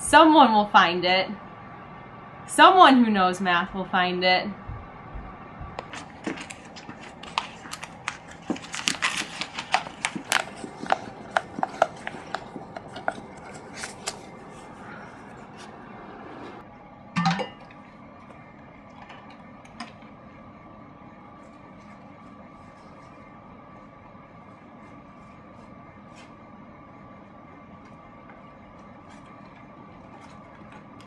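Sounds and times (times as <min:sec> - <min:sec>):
paper crackling and crinkling: 0:05.8 - 0:15.7, 0:27.7 - 0:31.0.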